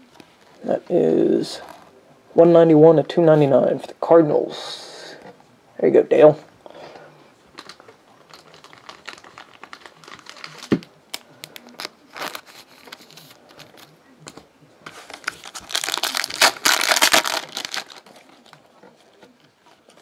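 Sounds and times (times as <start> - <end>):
foil wrapper tearing and crinkling: 7.6 - 13.9, 14.9 - 18.7.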